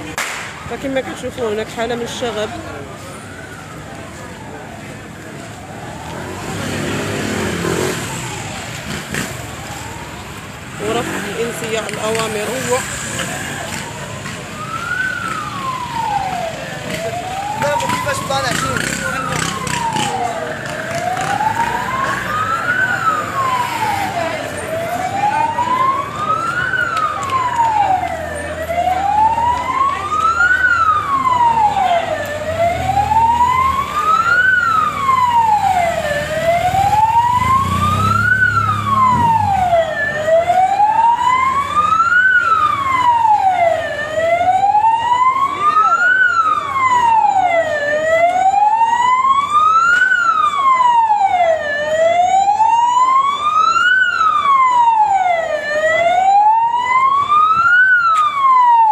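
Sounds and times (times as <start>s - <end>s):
siren wailing: 0.6s - 58.9s.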